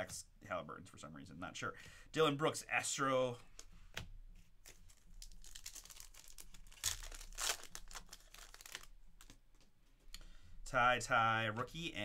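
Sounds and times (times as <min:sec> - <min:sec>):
foil wrapper tearing and crinkling: 0:04.7 - 0:09.4.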